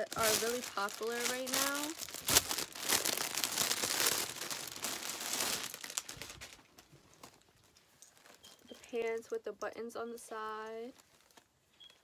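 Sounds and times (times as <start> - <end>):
plastic bag crinkling: 0.0 - 9.4, 10.6 - 12.0.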